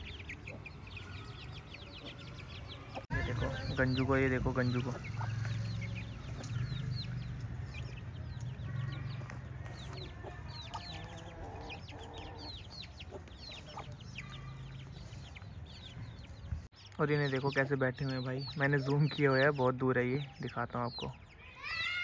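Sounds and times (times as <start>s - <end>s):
chicks peeping: 0.0s - 21.4s
chicken clucking: 9.2s - 14.5s.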